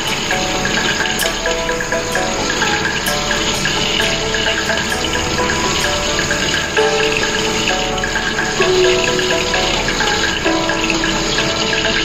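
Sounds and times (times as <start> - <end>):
background music held notes: 0.0 - 12.0.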